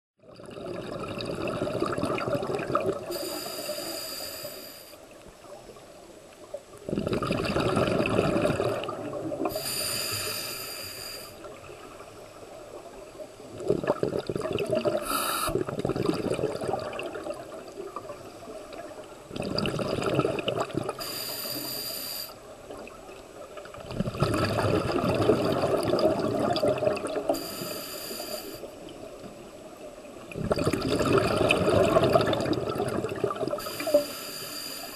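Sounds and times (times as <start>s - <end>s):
exhaled bubbles underwater: 0.2s - 3.9s, 5.4s - 10.4s, 11.1s - 34.9s
regulator hissing inhale: 3.1s - 5.1s, 9.5s - 11.5s, 15.0s - 15.6s, 21.0s - 22.4s, 27.3s - 28.7s, 33.6s - 34.9s.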